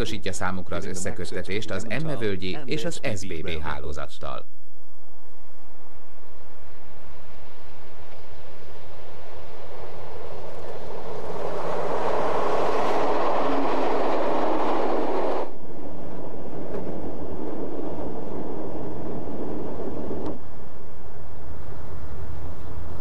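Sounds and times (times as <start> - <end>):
train passing on track: 6.7 - 21.8
train running noise inside coach: 10.5 - 20.5.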